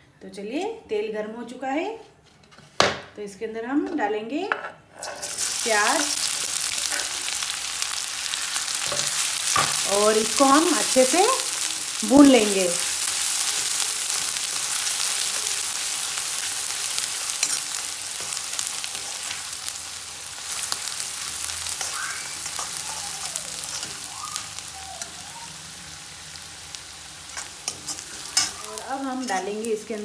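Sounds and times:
ladle scraping a pan: 4.9 - 5.6
onion sizzling in hot oil: 4.9 - 30.0.

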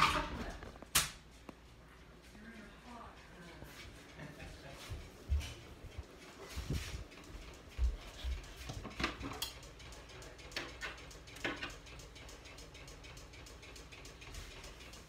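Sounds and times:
footsteps: 0.0 - 9.4.

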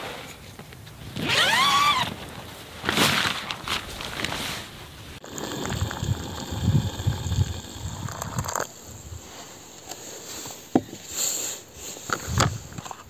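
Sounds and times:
water pouring into a pouch: 5.2 - 8.7.

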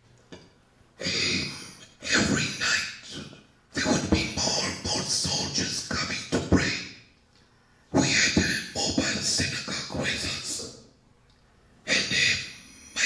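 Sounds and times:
man talking into microphone: 1.0 - 7.0, 7.9 - 10.9, 11.9 - 13.0.

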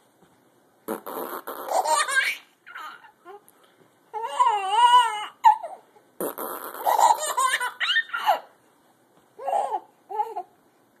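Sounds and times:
adult blowing raspberry: 0.9 - 1.8, 6.2 - 7.2
baby laughing and squealing: 1.6 - 3.4, 4.2 - 5.9, 6.6 - 8.6, 9.4 - 10.5.

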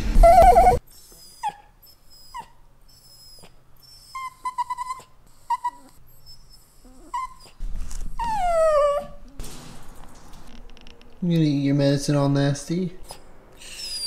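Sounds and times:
dog whining and whimpering: 0.0 - 9.3, 13.0 - 14.0.

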